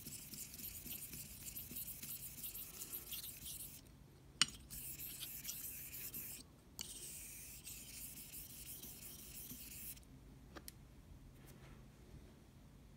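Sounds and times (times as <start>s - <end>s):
razor scraping on whetstone: 0.0s - 3.8s, 4.7s - 10.0s.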